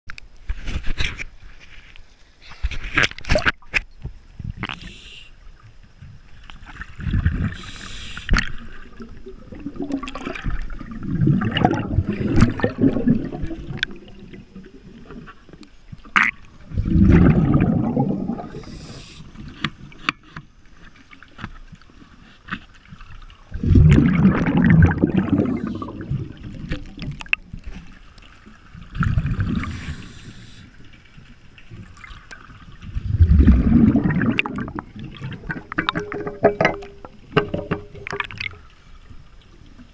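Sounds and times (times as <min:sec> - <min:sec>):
underwater breath bubbles gurgling: 0:04.4 - 0:20.0, 0:23.4 - 0:39.0.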